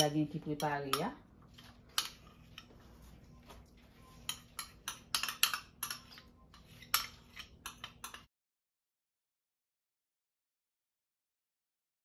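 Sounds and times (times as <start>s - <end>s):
spoon clinking against bowl: 1.9s - 2.7s, 3.9s - 8.3s.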